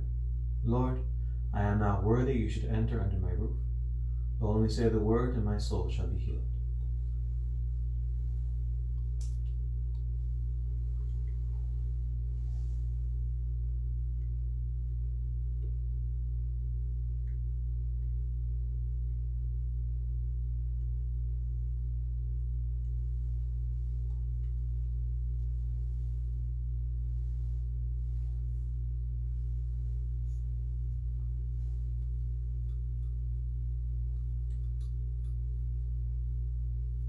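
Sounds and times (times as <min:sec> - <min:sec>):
steady low hum: 0:00.0 - 0:37.0
faint clicks and taps: 0:34.0 - 0:35.5.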